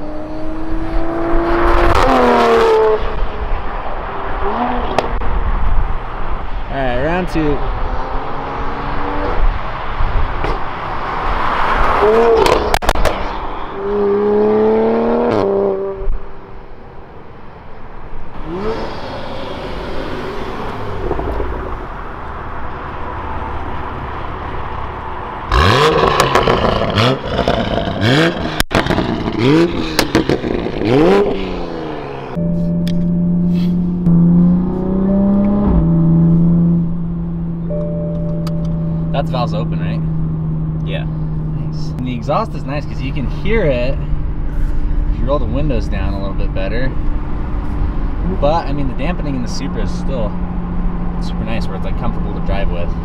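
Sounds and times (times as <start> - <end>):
sports car engine accelerating: 0.0 - 5.3, 7.6 - 16.2, 18.3 - 53.0
exhaust cracks: 25.5 - 33.1.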